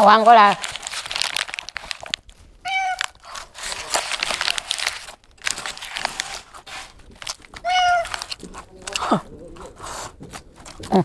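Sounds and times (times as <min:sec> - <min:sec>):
paper wrapper crinkling: 0:00.0 - 0:11.0
cat meowing: 0:02.6 - 0:03.5, 0:07.5 - 0:08.4.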